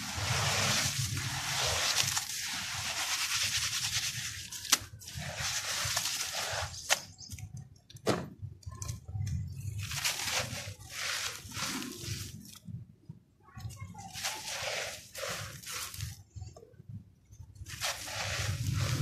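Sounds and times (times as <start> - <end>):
gritty hiss of falling dirt: 4.6 - 7.4, 17.6 - 19.0.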